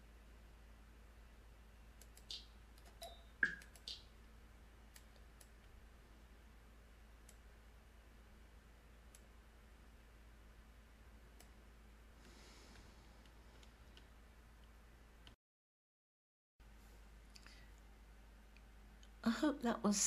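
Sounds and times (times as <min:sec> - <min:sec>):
computer mouse clicking: 0:02.0 - 0:04.0.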